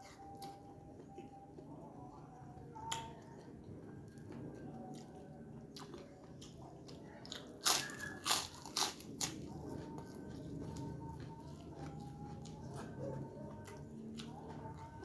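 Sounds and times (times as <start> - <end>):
biting crispy cracker crunches: 7.2 - 9.5.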